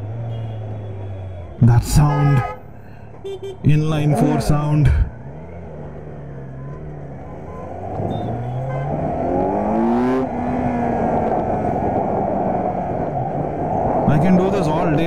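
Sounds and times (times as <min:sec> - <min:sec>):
motorcycle engine accelerating: 0:04.2 - 0:14.0.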